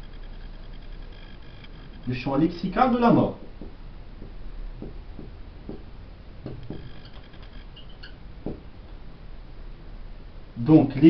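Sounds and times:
marker writing on whiteboard: 3.4s - 5.9s, 6.5s - 8.7s
marker tip squeaks: 6.6s - 8.2s.

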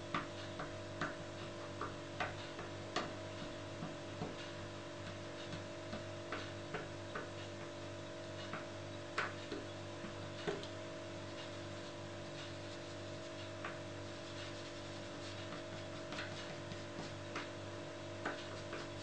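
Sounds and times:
steady electrical hum: 0.0s - 19.0s
ink pad tapping on paper: 0.1s - 1.2s, 1.8s - 4.4s, 15.3s - 17.6s, 18.2s - 19.0s.

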